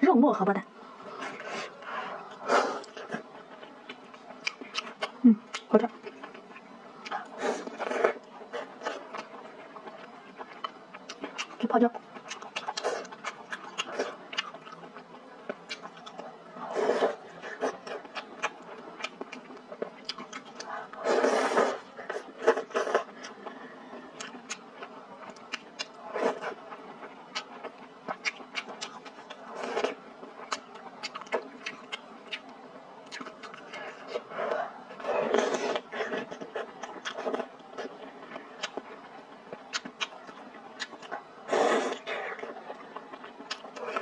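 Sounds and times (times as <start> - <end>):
wet chewing and lip-smacking: 2.3 - 7.2, 8.7 - 16.2, 17.8 - 20.7, 24.2 - 26.0, 26.8 - 34.3, 35.7 - 41.3, 41.9 - 44.0
person slurping noodles: 21.0 - 23.1.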